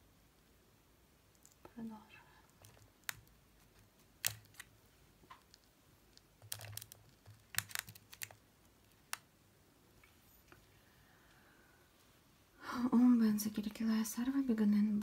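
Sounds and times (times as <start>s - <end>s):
small objects clicking and tapping: 1.3s - 1.7s, 2.5s - 9.3s.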